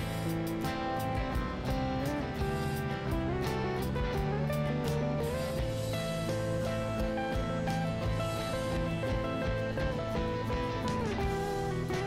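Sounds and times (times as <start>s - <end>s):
guitar-led instrumental music: 0.0s - 12.0s.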